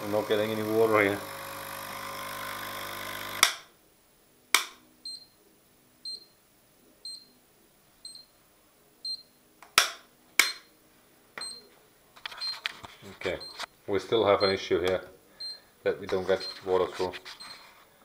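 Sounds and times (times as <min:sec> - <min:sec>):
water pump humming: 0:00.0 - 0:03.4
sharp click: 0:04.5 - 0:04.8.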